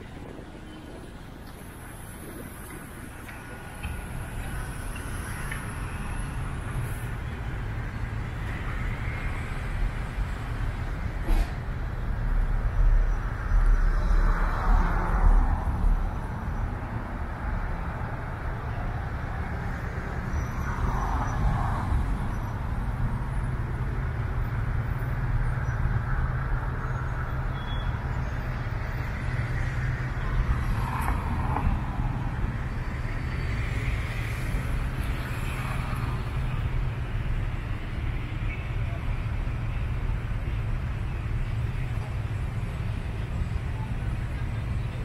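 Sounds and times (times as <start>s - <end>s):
car engine and road hum: 0.0s - 45.0s
traffic passing: 0.0s - 45.0s.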